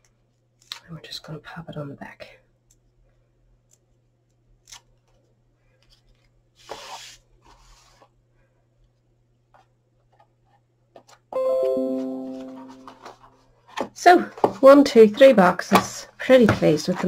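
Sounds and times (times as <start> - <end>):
music with sustained notes: 11.4 - 13.1.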